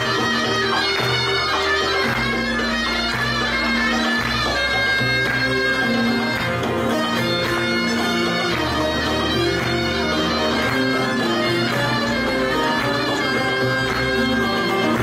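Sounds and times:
folk ensemble of lutes playing: 0.0s - 15.0s.

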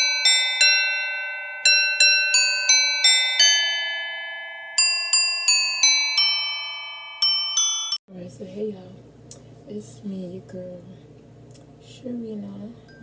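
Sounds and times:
bell-like chime melody: 0.0s - 8.0s.

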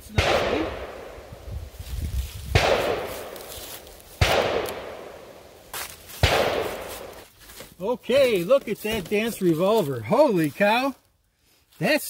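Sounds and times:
gunshot echo: 0.1s - 1.2s, 2.5s - 3.4s, 4.2s - 5.3s, 6.2s - 7.1s.

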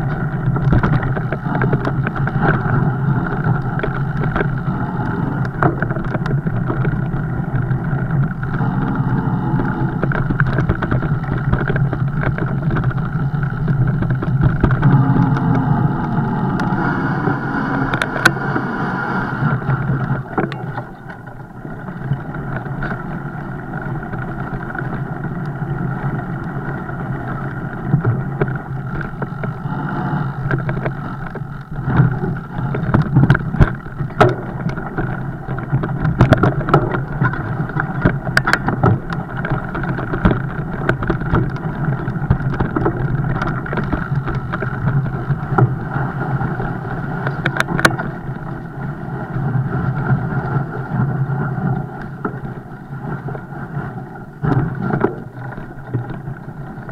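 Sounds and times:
bike knocks and rattles: 0.0s - 53.4s
bike tyres rolling rumble: 0.0s - 56.9s
wind on microphone: 0.0s - 56.9s.

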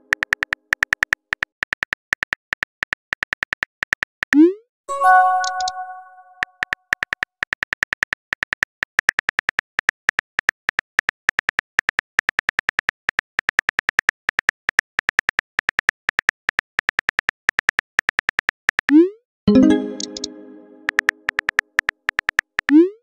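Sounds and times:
phone keyboard typing clicks: 5.2s - 6.0s, 19.6s - 22.6s.

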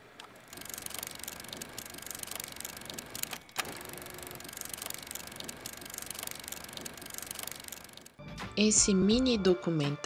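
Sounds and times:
fast mechanical ticking clatter: 0.3s - 8.2s.

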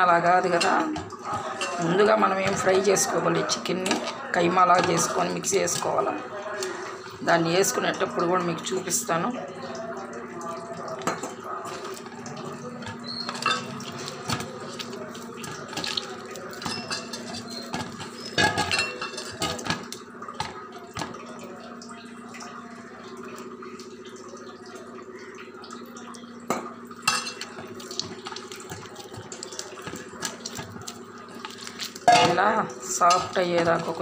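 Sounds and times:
metal bowl clanking and scraping: 0.4s - 7.0s, 11.0s - 21.3s, 27.0s - 34.0s.

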